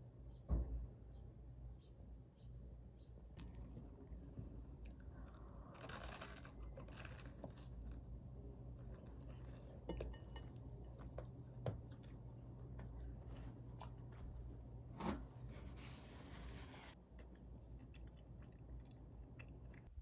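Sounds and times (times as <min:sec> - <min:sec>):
toast rustling: 0:03.4 - 0:08.2.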